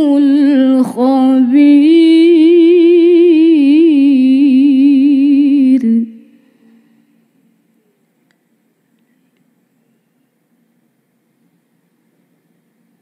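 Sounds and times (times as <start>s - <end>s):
woman reciting melodically: 0.0s - 6.8s.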